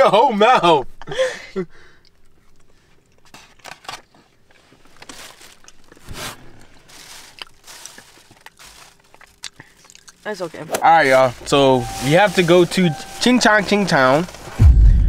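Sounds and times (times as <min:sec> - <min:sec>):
foam container rustling: 0:04.6 - 0:14.6
brownie being chewed: 0:06.6 - 0:10.3.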